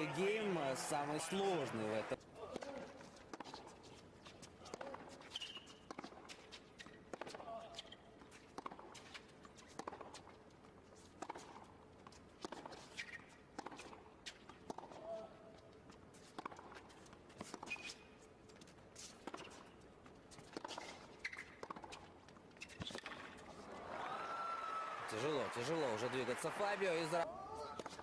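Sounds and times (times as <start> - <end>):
shoes squeaking on court: 0.0 - 23.9.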